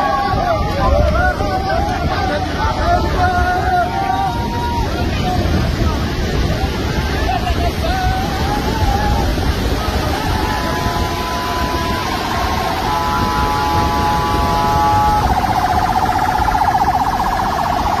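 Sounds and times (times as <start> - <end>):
loud steady rushing noise: 0.0 - 18.0
electronic siren: 12.1 - 18.0.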